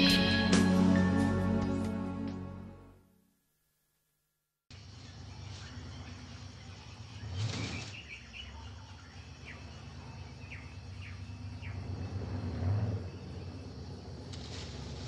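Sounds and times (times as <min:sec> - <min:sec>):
birds chirping: 0:04.7 - 0:14.2
swish of leaves: 0:07.2 - 0:08.4, 0:14.2 - 0:15.0.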